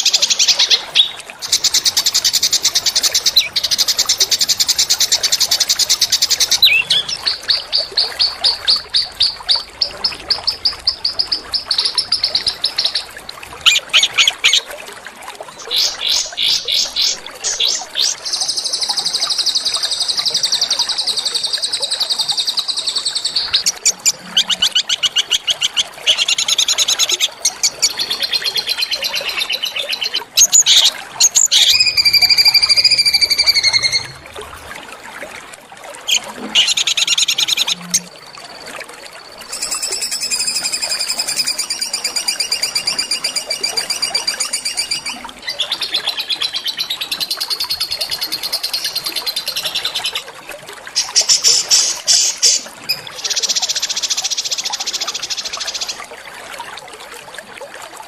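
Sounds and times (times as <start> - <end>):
songbirds trilling: 0.0 - 14.6, 15.6 - 34.2
whistled bird note: 39.4 - 45.3.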